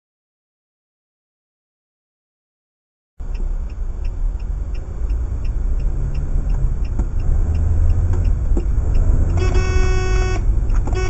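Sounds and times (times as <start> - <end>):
faint regular ticking: 3.2 - 9.4
car engine and tyres rumbling: 3.2 - 11.0.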